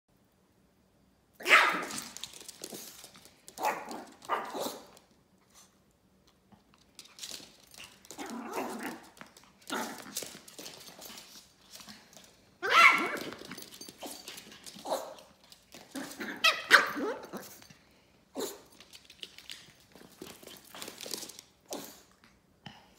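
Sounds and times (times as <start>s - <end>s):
small dog barking: 1.4s - 2.2s, 3.6s - 4.9s, 12.6s - 13.2s, 14.8s - 15.2s, 16.2s - 17.5s.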